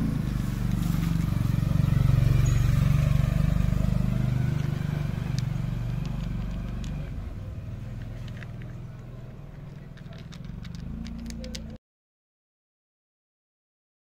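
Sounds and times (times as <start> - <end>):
vehicle engine drone: 0.0 - 11.8
cat chewing dry kibble: 4.6 - 11.8.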